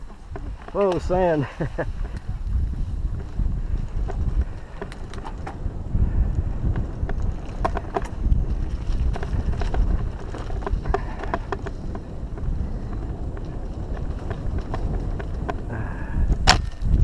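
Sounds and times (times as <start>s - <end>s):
bike tyres clicking and rattling: 0.0s - 17.0s
wind rumble on microphone: 0.0s - 17.0s.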